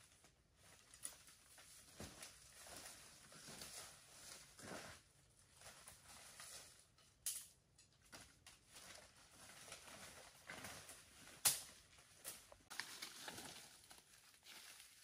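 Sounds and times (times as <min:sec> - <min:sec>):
twigs snapping: 0:11.4 - 0:13.7.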